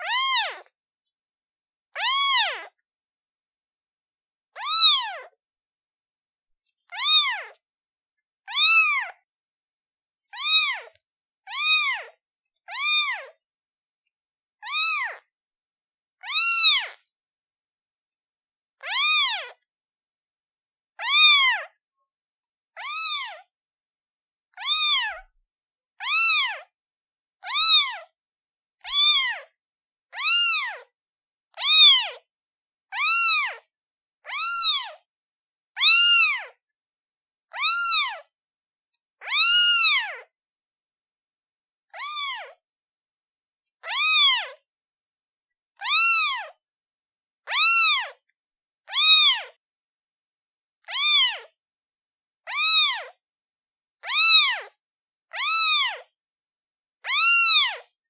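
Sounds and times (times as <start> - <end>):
kitten meowing: 0.0 - 0.7, 2.0 - 2.8, 4.6 - 5.4, 6.9 - 7.6, 8.5 - 9.2, 10.3 - 13.4, 14.6 - 15.3, 16.2 - 17.0, 18.8 - 19.6, 21.0 - 21.8, 22.8 - 23.5, 24.5 - 25.3, 26.0 - 26.7, 27.4 - 28.1, 28.8 - 29.5, 30.1 - 30.9, 31.5 - 32.2, 32.9 - 33.6, 34.2 - 35.0, 35.8 - 36.6, 37.5 - 38.3, 39.2 - 40.3, 41.9 - 42.6, 43.8 - 44.6, 45.8 - 46.6, 47.5 - 48.2, 48.8 - 49.6, 50.8 - 51.5, 52.5 - 53.2, 54.0 - 56.1, 57.0 - 57.9.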